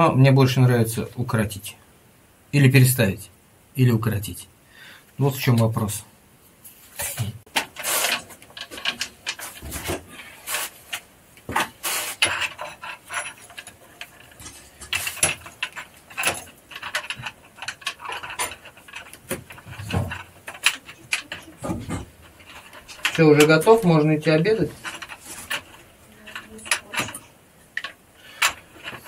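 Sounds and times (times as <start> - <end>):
plastic pipes and tools clattering: 7.0 - 29.0.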